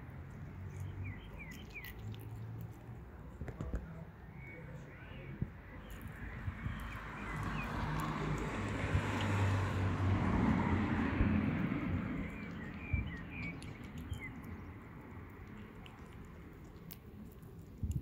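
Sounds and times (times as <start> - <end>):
vehicle passing: 0.0 - 3.4, 5.2 - 17.9
bird chirps: 0.7 - 2.1, 4.2 - 8.0, 12.1 - 14.7.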